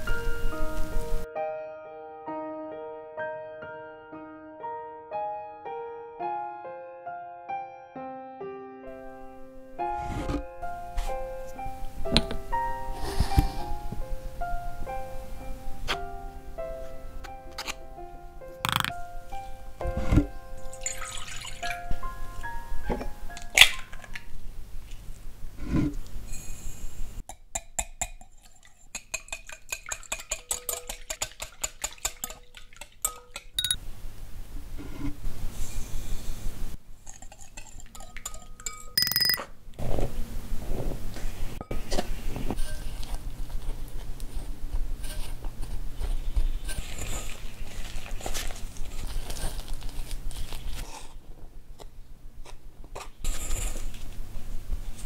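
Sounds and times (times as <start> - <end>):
flour being poured: 20.7 - 22.0, 46.7 - 50.8
whisk clicking against glass bowl: 27.6 - 33.8, 37.1 - 39.4
wooden spoon stirring dough: 41.8 - 50.9.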